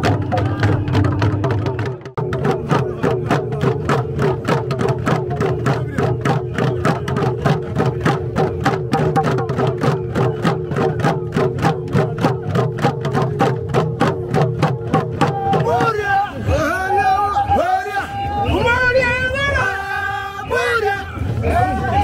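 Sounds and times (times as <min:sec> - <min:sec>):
men chanting together: 0:15.2 - 0:22.0.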